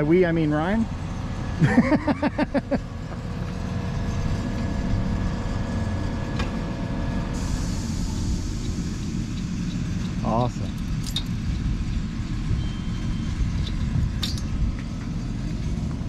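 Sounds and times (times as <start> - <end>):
engine running: 0.0 - 16.0
high hiss: 7.4 - 10.6.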